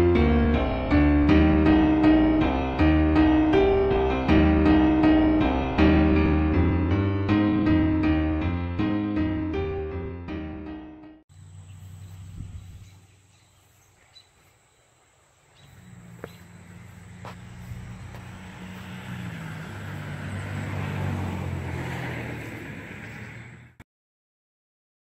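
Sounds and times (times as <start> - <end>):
insect-like hiss: 11.3 - 19.2.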